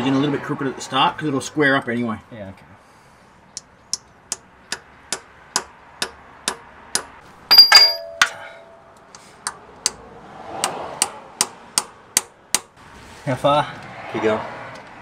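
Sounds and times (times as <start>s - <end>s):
metallic clangs: 7.5s - 8.9s.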